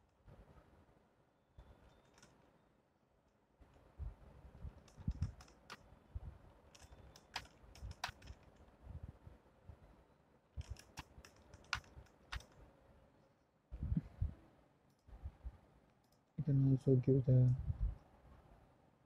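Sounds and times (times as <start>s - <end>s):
computer keyboard typing: 4.8s - 5.8s, 6.8s - 8.5s, 10.6s - 12.6s.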